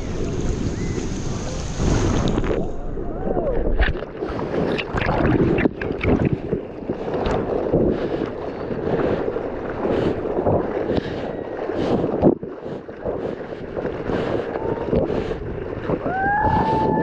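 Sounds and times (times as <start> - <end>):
wind buffeting microphone: 0.0 - 17.0
water splashing against boat hull: 3.5 - 16.0.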